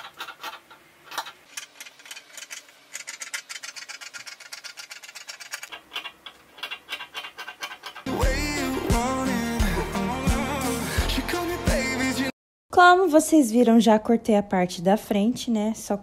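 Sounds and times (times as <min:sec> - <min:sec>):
pop music with bass line: 0:08.1 - 0:12.3.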